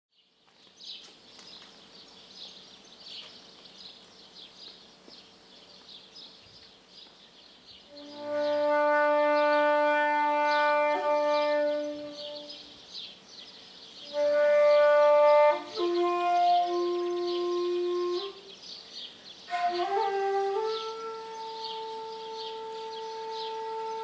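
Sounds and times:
wooden flute long note: 7.9s - 12.8s, 14.0s - 18.5s, 19.4s - 24.0s.

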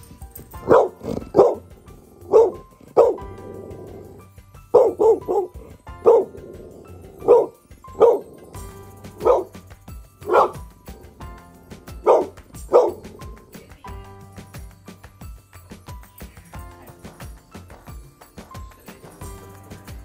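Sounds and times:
dog barking: 0.6s - 9.6s, 10.2s - 11.1s, 11.9s - 13.4s.

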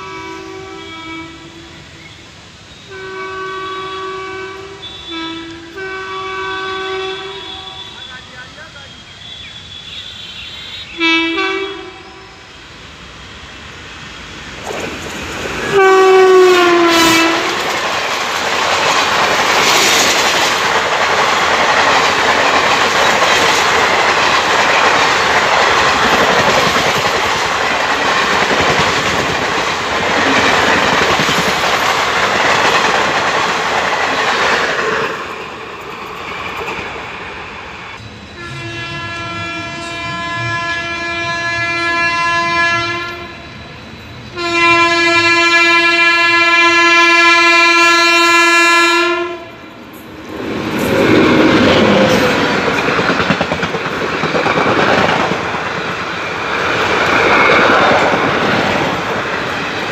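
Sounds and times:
train horn blast: 0.0s - 1.9s, 2.8s - 12.7s, 15.7s - 17.7s, 38.3s - 43.5s, 44.3s - 49.6s
distant train horn: 0.0s - 2.2s, 2.8s - 12.7s, 15.6s - 17.7s, 38.3s - 43.6s, 44.2s - 49.7s
train wheels clattering over rail joints: 17.4s - 37.0s, 50.6s - 59.9s.

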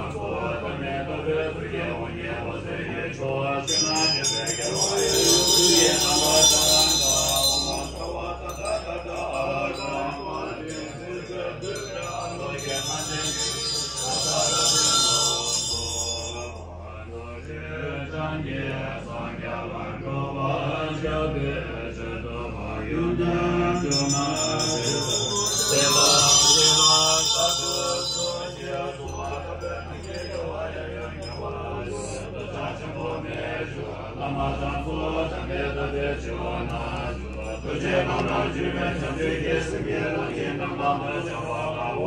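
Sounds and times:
low chanting: 0.0s - 42.0s
sustained drone: 0.0s - 42.0s
bright high shimmer: 3.7s - 16.9s, 23.7s - 32.8s.

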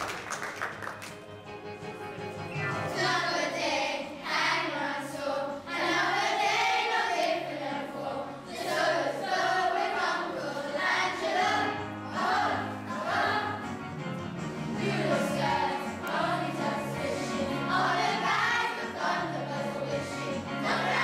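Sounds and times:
instrumental accompaniment with bass: 1.0s - 3.3s, 11.9s - 18.6s
children singing together: 2.8s - 13.8s, 14.7s - 21.0s.

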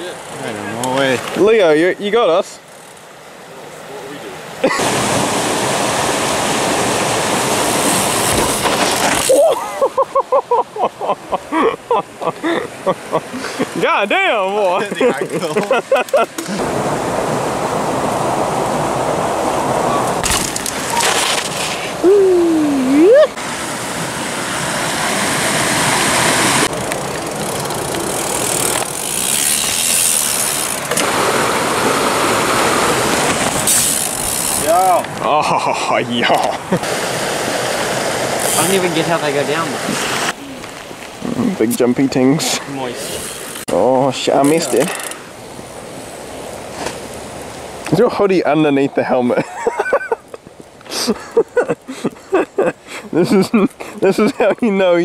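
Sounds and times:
bike tyres rolling on dirt: 0.0s - 3.2s, 4.9s - 9.5s, 13.7s - 35.3s, 36.9s - 48.8s
stream running: 0.0s - 55.0s.

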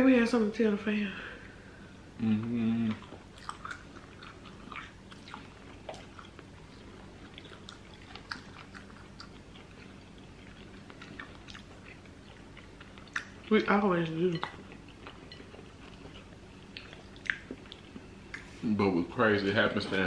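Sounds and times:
faint steady hum: 0.0s - 20.0s
chewing and biting food: 2.9s - 18.6s.

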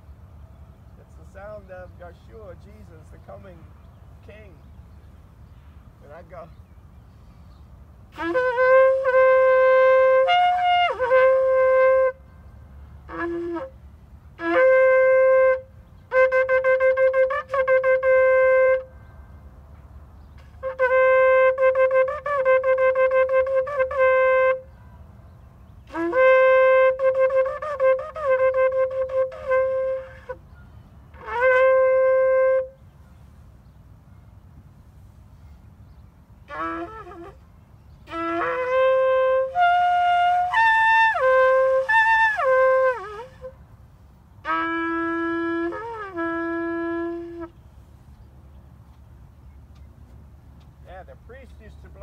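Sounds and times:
ram's horn blasts: 8.1s - 13.8s, 14.4s - 19.5s, 20.4s - 24.9s, 25.8s - 30.4s, 31.1s - 32.9s, 36.4s - 43.6s, 44.4s - 47.6s.

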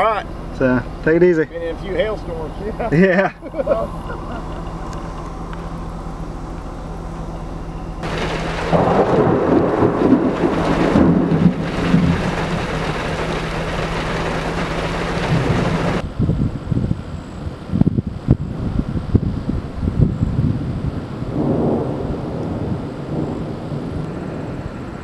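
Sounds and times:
rain hiss: 0.0s - 16.0s, 20.9s - 25.0s
thunder rumbling: 3.8s - 16.6s, 20.4s - 25.0s.

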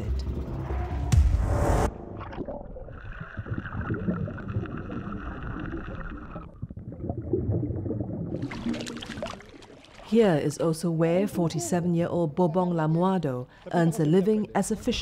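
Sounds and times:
underwater sloshing and bubbling: 1.9s - 10.2s.

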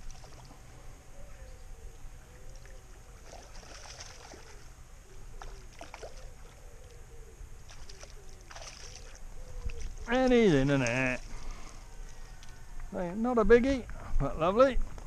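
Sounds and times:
fish splashing at water surface: 2.5s - 4.7s, 5.4s - 6.6s, 7.6s - 11.6s.

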